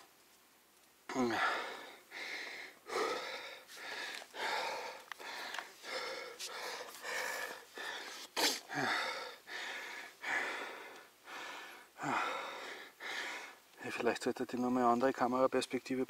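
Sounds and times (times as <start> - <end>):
man breathing hard: 1.2 - 13.6.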